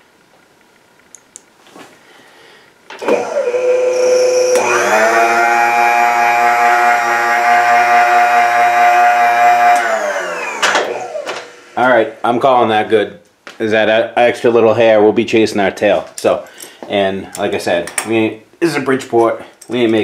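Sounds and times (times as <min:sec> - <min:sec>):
power feed motor whine: 0:03.0 - 0:12.2.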